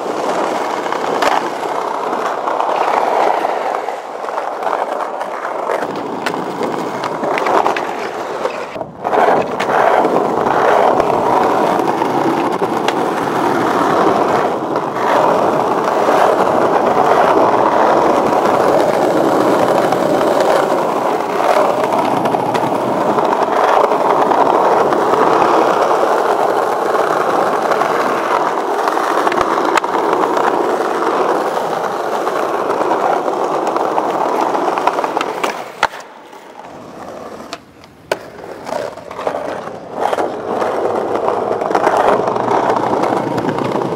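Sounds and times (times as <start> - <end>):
skateboard wheels rolling on stone: 0.0 - 43.9.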